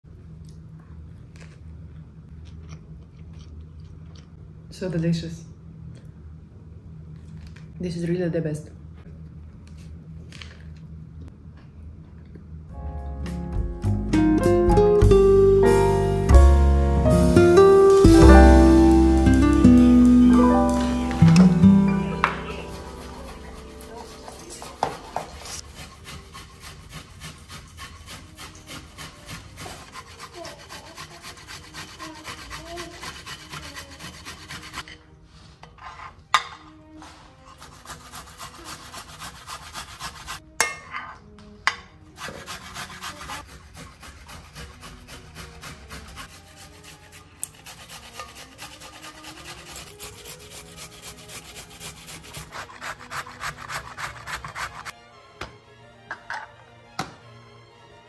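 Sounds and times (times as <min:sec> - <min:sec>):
rhythmic rasping strokes: 0:15.0 - 0:34.8, 0:42.2 - 0:55.0.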